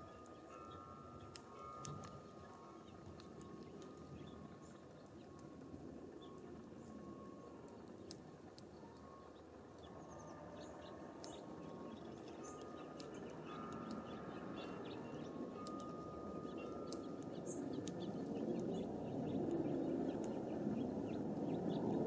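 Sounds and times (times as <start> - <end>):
small ticks: 0.0 - 22.0.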